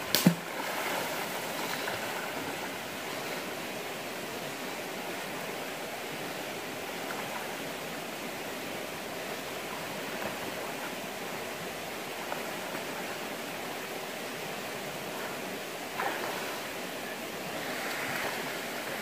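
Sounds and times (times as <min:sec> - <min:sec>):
person splashing in water: 0:00.0 - 0:01.2
river water flowing: 0:00.0 - 0:19.0.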